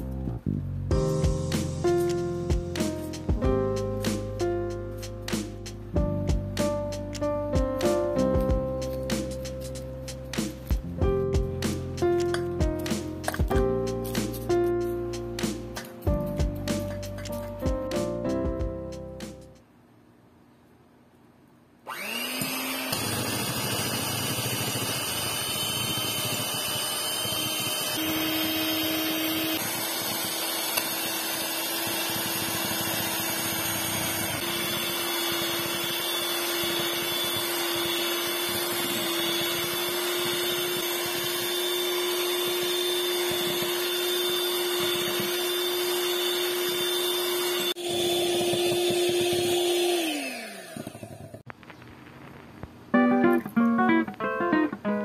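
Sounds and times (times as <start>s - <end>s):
electric hand mixer whining: 21.9s - 51.5s.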